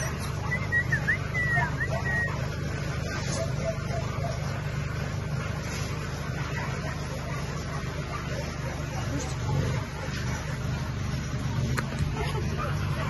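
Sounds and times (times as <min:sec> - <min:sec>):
puppy whimpering: 0:00.0 - 0:02.5.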